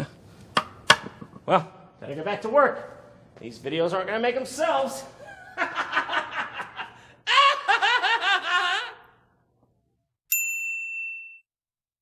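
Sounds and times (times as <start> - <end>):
man laughing: 5.2 - 9.2
cartoon ding chime: 10.3 - 11.4.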